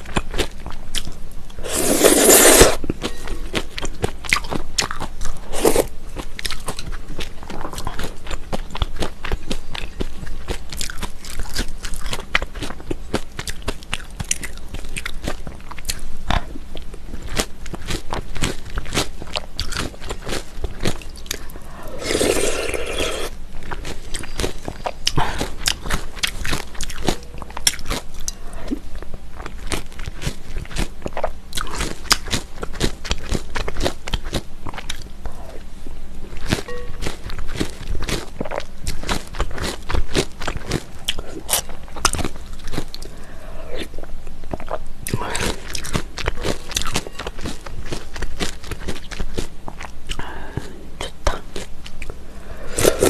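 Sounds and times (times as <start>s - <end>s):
chewing and crunching: 0.0s - 53.0s
slurp: 1.6s - 2.8s, 21.7s - 23.4s, 52.6s - 53.0s.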